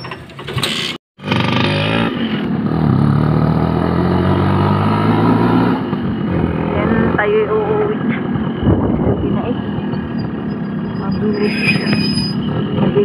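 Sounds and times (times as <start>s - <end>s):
vehicle engine accelerating: 1.2s - 11.4s.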